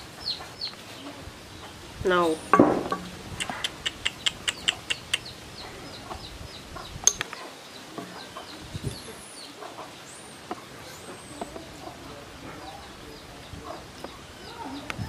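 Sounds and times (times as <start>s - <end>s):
chickens clucking: 0.0s - 15.0s.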